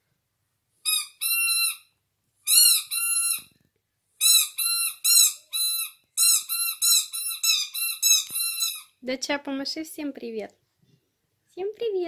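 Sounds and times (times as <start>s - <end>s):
squeaky toy squeaks: 0.8s - 3.6s, 4.2s - 9.0s.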